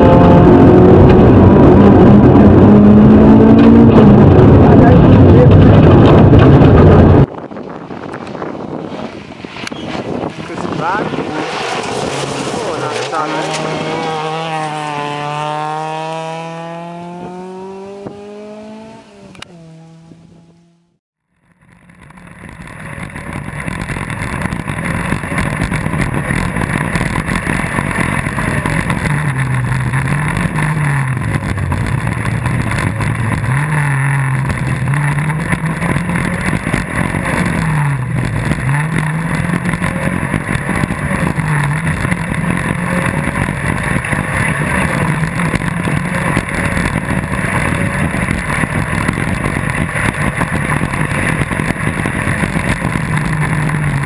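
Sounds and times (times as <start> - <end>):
buggy engine revving: 0.0 - 7.8, 9.8 - 21.0, 21.8 - 54.0
wind rush: 0.0 - 19.8, 34.2 - 54.0
gravel noise: 0.0 - 19.9, 21.3 - 54.0.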